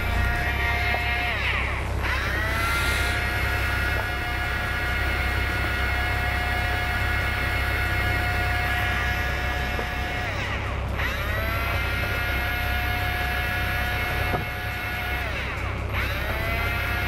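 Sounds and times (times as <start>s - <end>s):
low rumble: 0.0s - 7.4s
fishing reel motor whirring: 0.0s - 17.0s.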